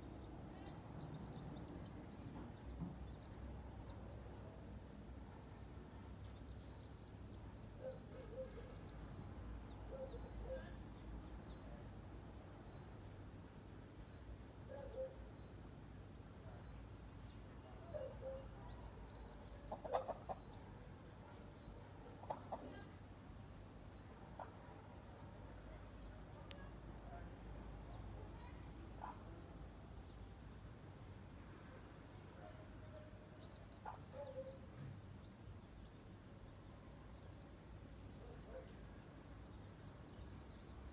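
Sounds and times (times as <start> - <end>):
hen clucking softly: 19.7 - 20.5, 22.2 - 22.8.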